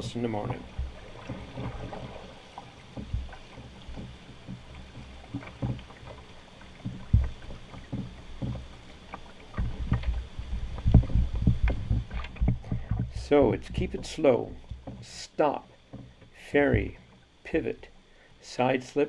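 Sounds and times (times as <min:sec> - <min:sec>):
pole knocking on rocks and hull: 0:00.0 - 0:15.1, 0:15.9 - 0:17.0.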